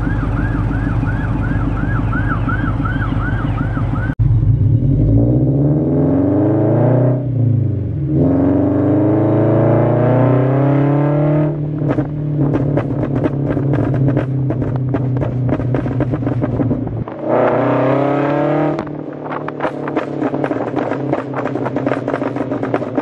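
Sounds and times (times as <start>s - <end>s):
car engine revving: 0.0s - 23.0s
exhaust pops and crackles: 11.7s - 17.6s, 18.7s - 23.0s.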